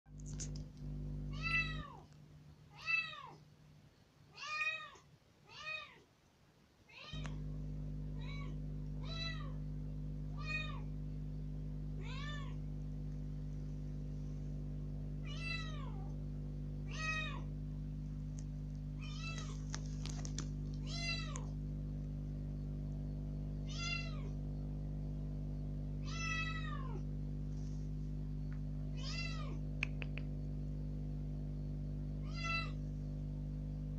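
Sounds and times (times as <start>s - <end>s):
steady low hum: 0.1s - 3.9s, 7.1s - 33.9s
kitten meowing loudly: 23.7s - 24.3s, 26.0s - 27.0s.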